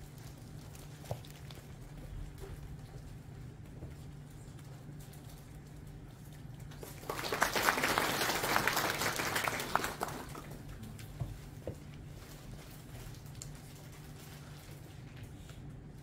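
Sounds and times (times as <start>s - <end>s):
group clapping: 6.7s - 10.8s.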